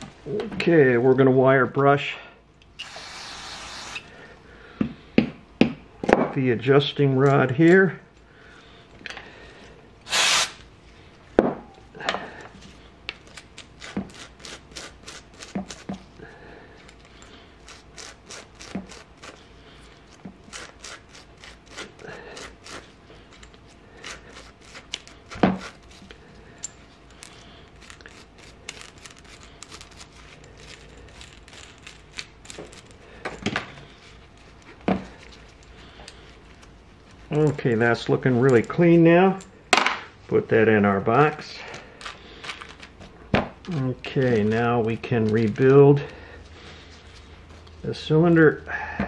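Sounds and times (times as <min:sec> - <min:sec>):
wire brush scrubbing metal: 0:17.6 - 0:19.4, 0:20.4 - 0:23.0.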